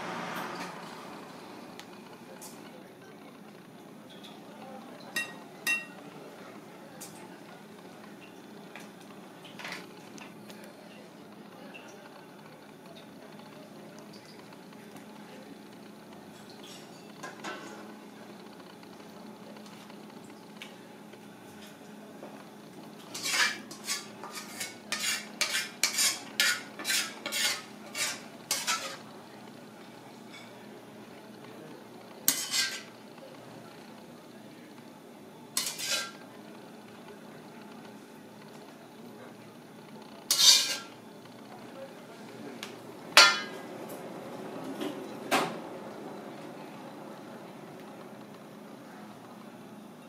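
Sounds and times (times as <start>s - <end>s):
metal ladle and dishware clanking: 5.2s - 6.0s, 40.3s - 40.9s, 43.2s - 43.6s
ladle scraping a wok: 23.0s - 29.1s, 32.3s - 33.0s, 35.6s - 36.2s, 40.3s - 41.0s.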